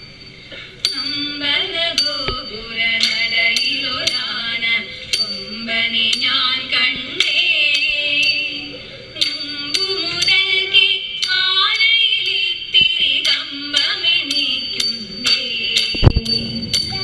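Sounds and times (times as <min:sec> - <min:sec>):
women singing: 0:00.9 - 0:17.0.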